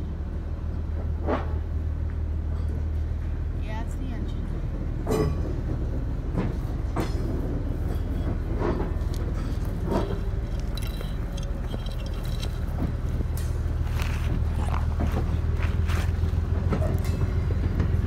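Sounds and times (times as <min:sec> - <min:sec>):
diesel locomotive idling: 0:00.0 - 0:18.0
metallic clinks and knocks: 0:07.9 - 0:15.1.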